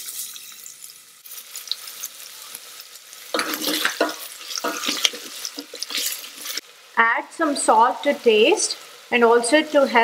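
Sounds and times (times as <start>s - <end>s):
onion sizzling in hot oil: 0.0s - 10.0s
spoon stirring in a pot: 3.2s - 6.6s.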